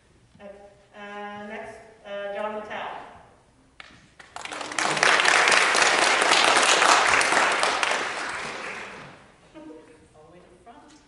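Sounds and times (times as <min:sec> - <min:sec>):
audience applauding: 0:04.2 - 0:09.2.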